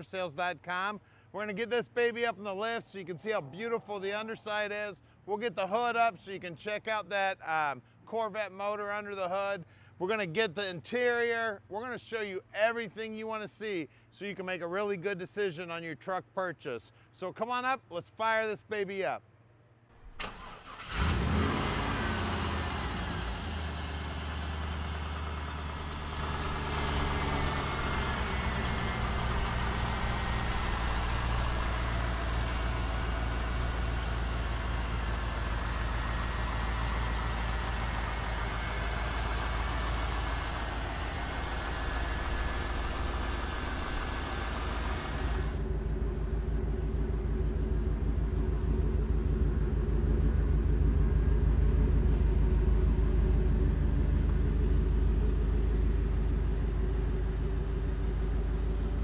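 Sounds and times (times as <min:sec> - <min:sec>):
car engine idling: 0:20.0 - 0:59.0.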